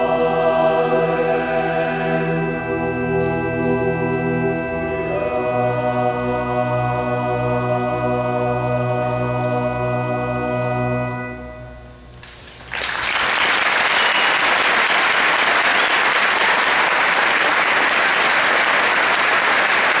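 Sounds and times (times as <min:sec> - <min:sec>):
choir and orchestra final chord: 0:00.0 - 0:11.7
audience applause: 0:12.6 - 0:20.0.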